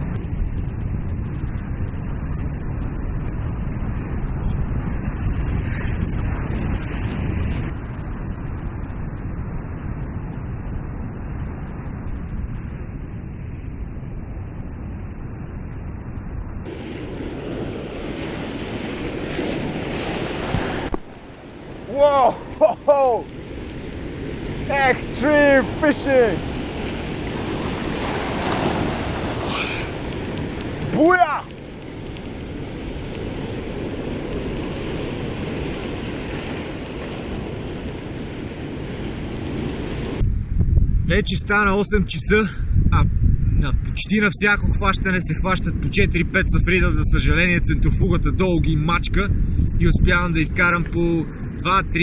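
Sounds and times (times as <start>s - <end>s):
surf breaking over rocks: 0.0s - 12.4s, 16.6s - 40.2s
wind buffeting microphone: 0.0s - 52.0s.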